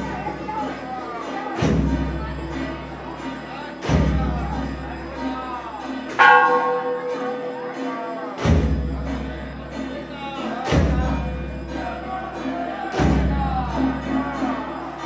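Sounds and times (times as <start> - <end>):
music or chanting: 0.0 - 15.0
bell ringing: 6.0 - 9.6
large drum beats: 8.4 - 9.2.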